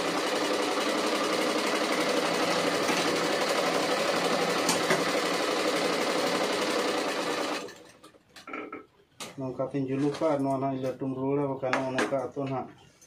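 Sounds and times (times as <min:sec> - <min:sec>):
sewing machine running: 0:00.0 - 0:08.0.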